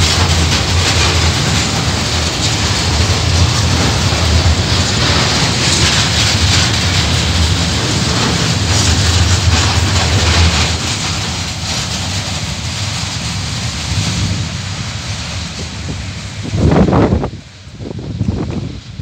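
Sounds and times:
hiss: 0:00.0 - 0:19.0
train wheels rumbling on rail: 0:00.0 - 0:19.0.

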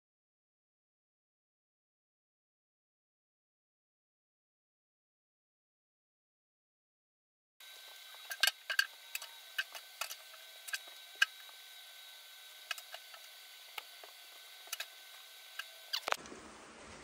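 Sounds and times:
faint steady hiss: 0:07.6 - 0:17.0
thin high whine: 0:07.6 - 0:17.0.

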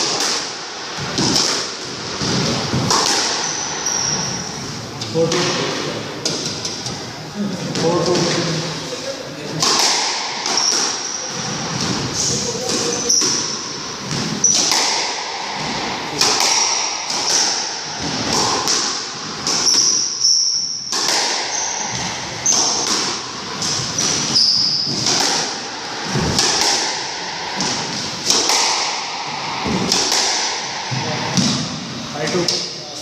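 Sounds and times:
squash ball hitting rackets and walls: 0:00.0 - 0:07.1, 0:07.7 - 0:08.7, 0:09.5 - 0:32.8
shoes squeaking on wooden floor: 0:03.4 - 0:04.8, 0:10.5 - 0:13.6, 0:21.5 - 0:22.8, 0:23.6 - 0:25.0.

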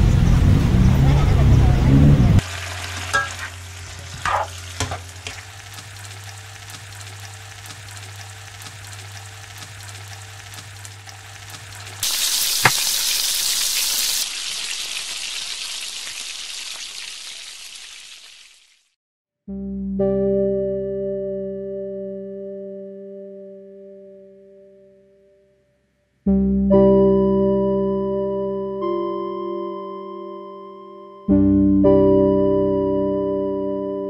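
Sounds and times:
loud sizzling: 0:02.3 - 0:18.7
food frying in a pan: 0:02.4 - 0:19.0.

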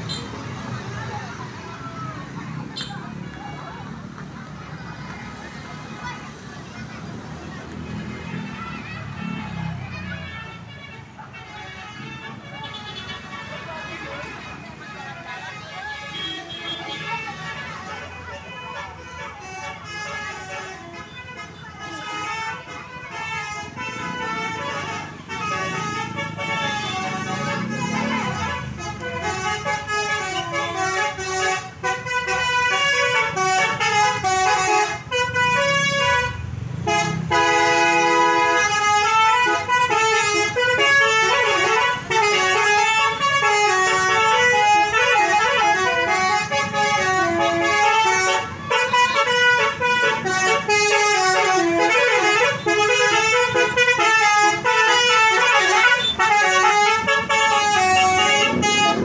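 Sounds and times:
melodic air horn playing a tune: 0:18.7 - 0:59.0.

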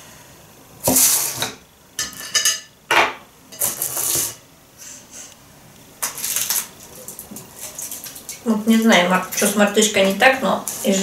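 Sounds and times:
kitchenware clattering and scraping: 0:00.9 - 0:04.4.

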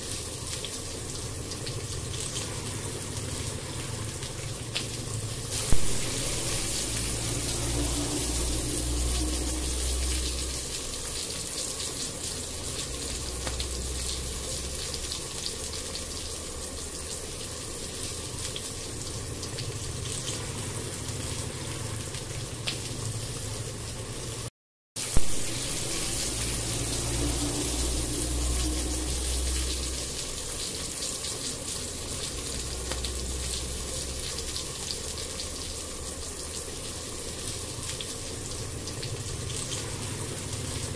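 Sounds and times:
onion sizzling in oil: 0:00.0 - 0:40.9
low hum: 0:05.6 - 0:11.4, 0:25.1 - 0:30.8.

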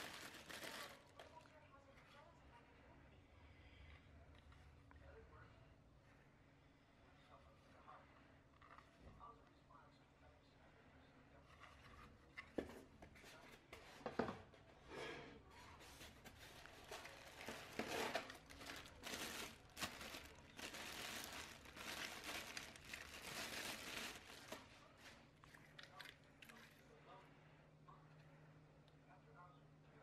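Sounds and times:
plastic bag crinkling: 0:00.0 - 0:01.5, 0:16.1 - 0:26.8.

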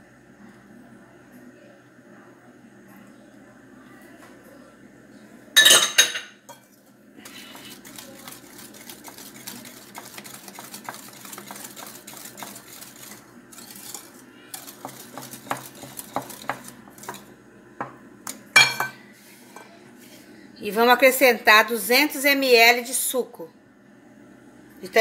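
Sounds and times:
whisk clinking on glass: 0:07.3 - 0:17.3.

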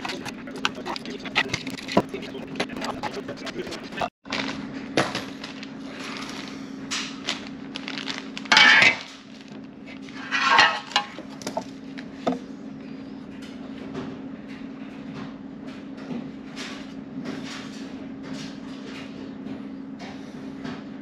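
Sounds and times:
hand tools clicking and scraping: 0:00.0 - 0:04.1, 0:08.5 - 0:09.1, 0:10.0 - 0:11.6
steady low hum: 0:00.0 - 0:21.0.

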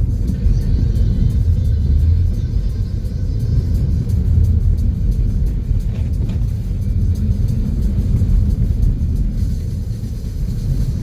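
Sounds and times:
vehicle rumbling on snowy road: 0:00.0 - 0:11.0.

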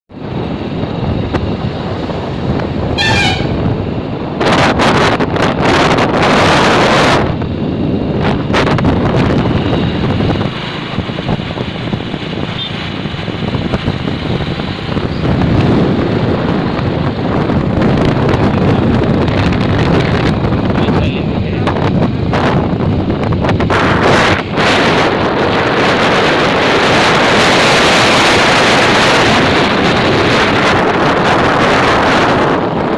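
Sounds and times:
road noise from moving vehicle: 0:00.1 - 0:32.9
wind buffeting microphone: 0:00.1 - 0:32.9
car horn honk: 0:02.9 - 0:03.7.

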